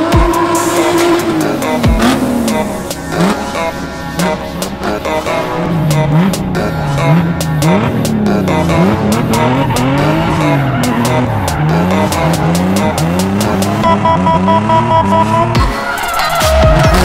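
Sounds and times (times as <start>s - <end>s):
car engine revving: 0.0s - 17.0s
tyres squealing: 5.6s - 17.0s.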